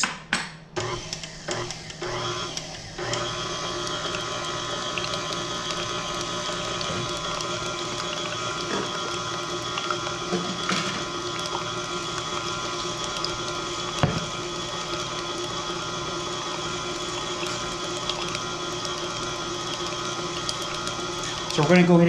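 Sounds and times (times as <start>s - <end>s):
stand mixer whisking: 0.8s - 22.0s.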